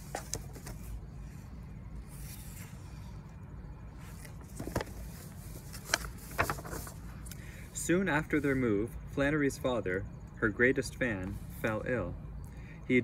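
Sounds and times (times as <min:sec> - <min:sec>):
book pages turning: 0:00.0 - 0:01.4, 0:04.0 - 0:07.1
low outdoor rumble: 0:00.0 - 0:13.0.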